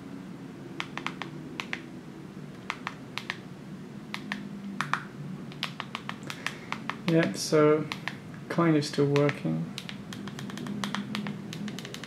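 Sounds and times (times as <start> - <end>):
phone keys clicking: 0.8 - 1.8, 9.1 - 12.0.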